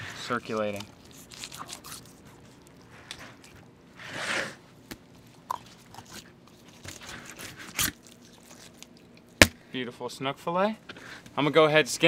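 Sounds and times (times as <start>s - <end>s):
knife crunching and scraping fish: 0.3s - 3.7s, 5.4s - 9.2s.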